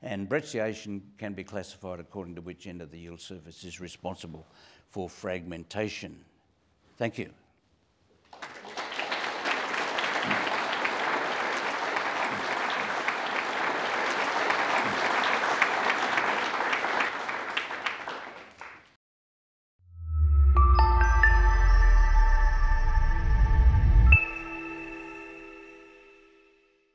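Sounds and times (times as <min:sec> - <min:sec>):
audience applauding: 0:08.3 - 0:18.9
logo music sting with bass note: 0:20.0 - 0:25.0.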